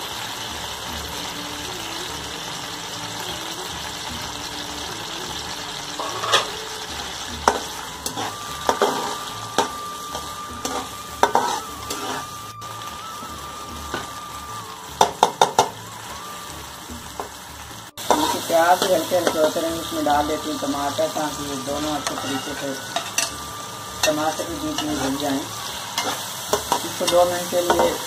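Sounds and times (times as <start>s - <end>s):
onions sizzling in pan: 0.0s - 28.0s.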